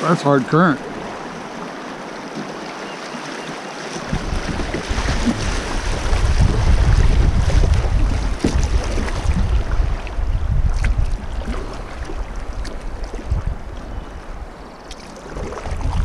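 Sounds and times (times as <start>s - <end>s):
river current rushing: 0.0s - 10.5s
wind buffeting microphone: 4.0s - 14.6s, 15.2s - 16.0s.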